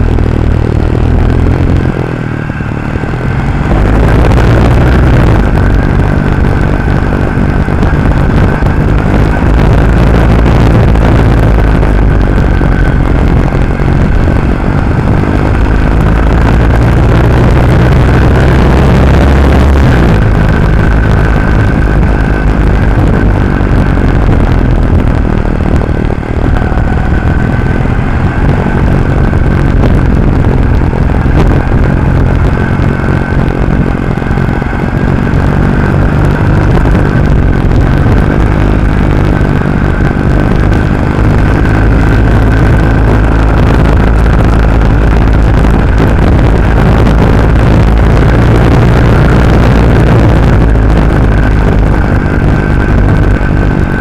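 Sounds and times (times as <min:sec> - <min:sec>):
motorcycle engine cruising: 0:00.0 - 0:54.0
wind and road noise: 0:00.0 - 0:54.0.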